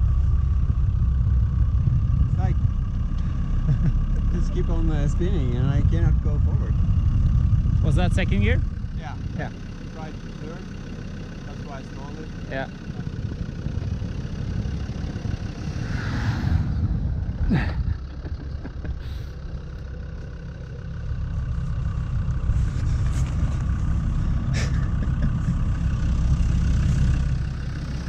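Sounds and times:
diesel engine under load: 0:00.0 - 0:28.0
wheels slipping in snow: 0:21.4 - 0:24.8.

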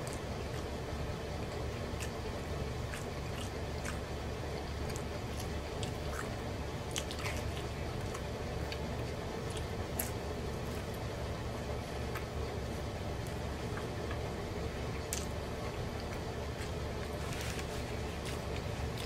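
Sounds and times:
man chewing food: 0:00.0 - 0:19.0
steady low hum: 0:00.0 - 0:19.0.

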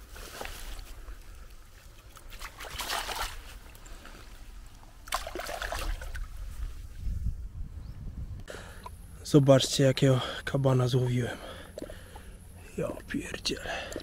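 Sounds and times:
water splashing and trickling: 0:00.3 - 0:06.8.

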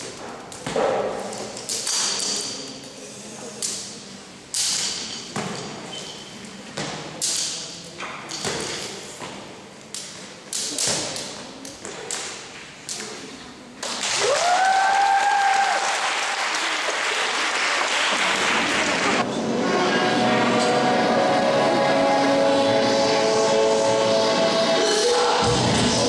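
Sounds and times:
applause: 0:14.0 - 0:19.2
person whooping: 0:14.2 - 0:15.8.

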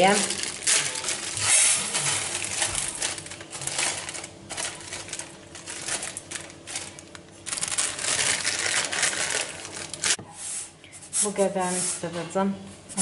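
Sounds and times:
plastic bag crinkling: 0:00.0 - 0:10.2.

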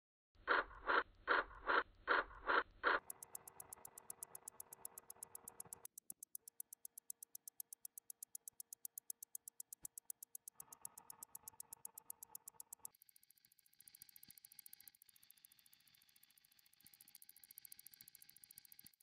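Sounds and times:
rapid clock ticking: 0:00.5 - 0:13.0.

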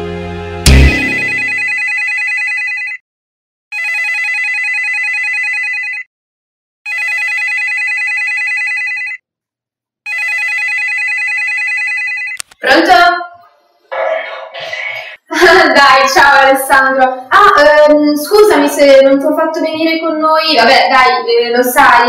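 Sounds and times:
background music: 0:00.0 - 0:01.6
loud thump: 0:00.6 - 0:01.4
phone electronic trilling ring: 0:01.0 - 0:03.0, 0:03.7 - 0:06.1, 0:06.9 - 0:09.2, 0:10.1 - 0:12.4.

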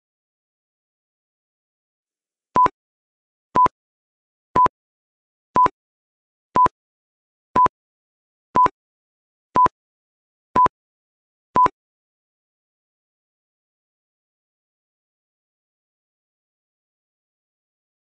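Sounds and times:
countdown timer beeping: 0:02.6 - 0:02.8.

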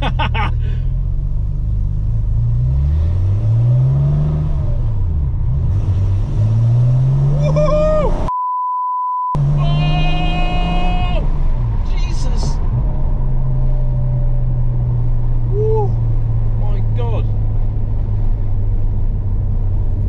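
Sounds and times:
car engine revving: 0:00.6 - 0:08.3, 0:09.4 - 0:20.0
person crying out: 0:07.4 - 0:08.2, 0:09.5 - 0:11.2, 0:15.5 - 0:16.0
censor bleep: 0:08.3 - 0:09.4.

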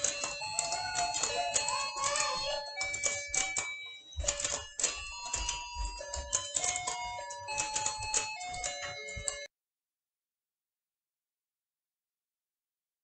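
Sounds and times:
electronic toy tune: 0:00.0 - 0:09.5
plastic toy clicking and clattering: 0:00.0 - 0:09.5.

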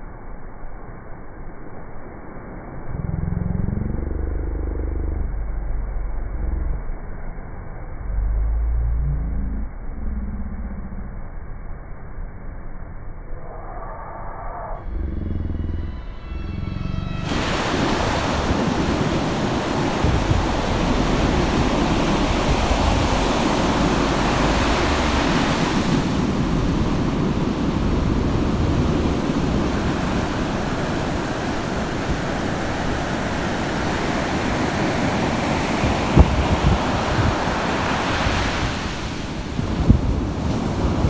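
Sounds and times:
waves breaking over rocks: 0:17.3 - 0:41.0.

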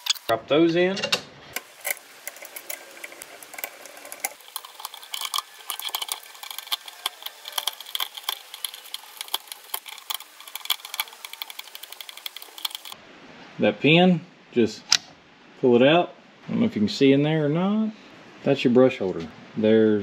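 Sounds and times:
hand ratchet clicking: 0:01.6 - 0:13.0
small metal ticks and rattles: 0:01.6 - 0:13.0.

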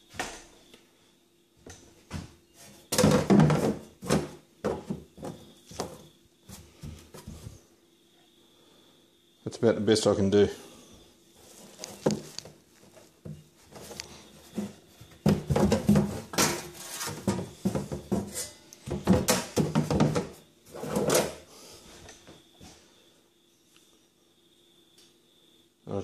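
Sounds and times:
saw blade scraping plastic tub: 0:14.5 - 0:21.4.

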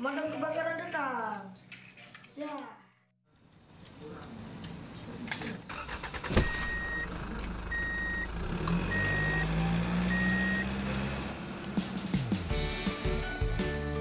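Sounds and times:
vehicle reversing alarm beeps: 0:06.4 - 0:10.8.

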